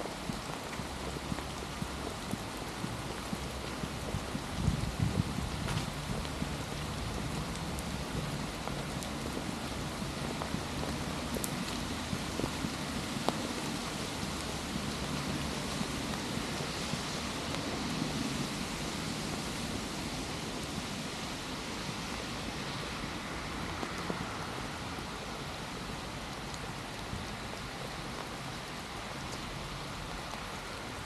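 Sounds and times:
sharp drip ticks: 0.0 - 18.8, 26.0 - 30.6
steady rain falling: 0.0 - 31.0.

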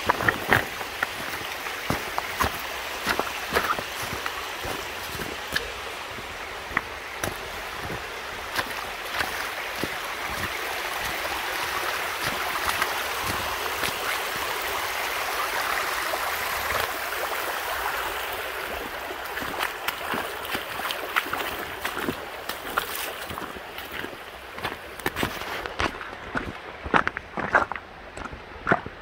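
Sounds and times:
creek rushing over rocks: 0.0 - 29.0.

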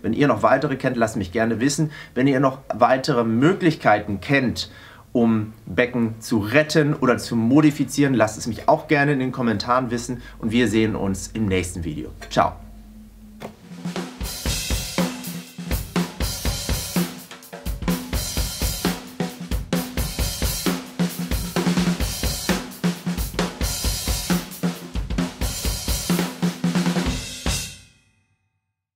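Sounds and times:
drum kit playing fast: 8.5 - 27.9.

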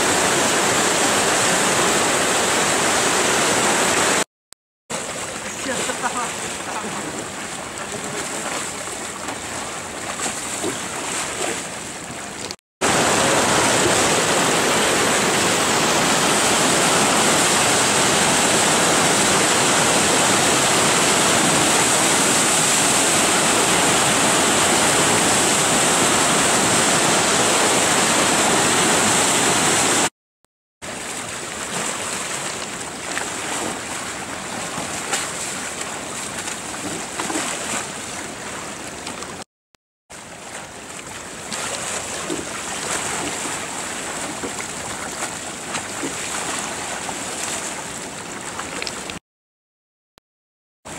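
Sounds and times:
water washing around kayak: 0.0 - 4.2, 4.9 - 30.1, 30.8 - 39.4, 40.1 - 49.2
whitewater rapids rushing: 0.0 - 4.2, 4.9 - 11.5, 12.8 - 30.1.

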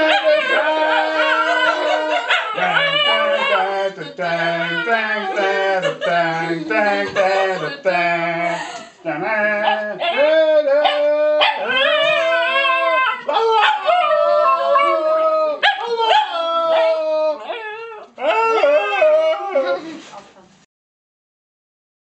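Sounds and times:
dog howling: 0.0 - 7.9, 9.2 - 19.9.

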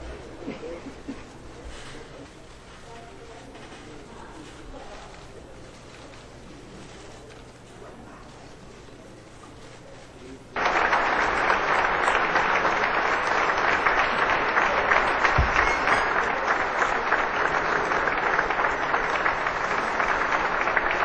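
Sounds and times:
crowd applauding: 10.6 - 21.0.

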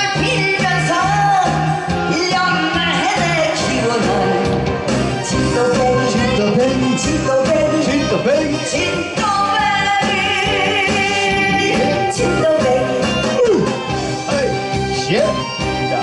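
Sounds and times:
woman singing into a microphone: 0.0 - 4.6, 8.7 - 13.8
band backing music: 0.0 - 16.0.

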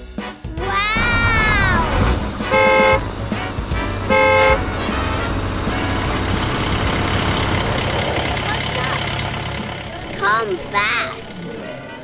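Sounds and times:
cartoon truck horn honking: 0.6 - 7.6
low engine rumble: 1.0 - 12.0.

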